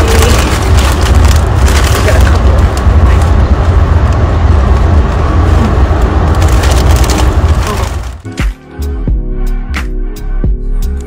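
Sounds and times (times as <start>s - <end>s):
chip bag crinkling: 0.0s - 2.8s, 6.3s - 8.2s
train car rumble: 0.0s - 8.3s.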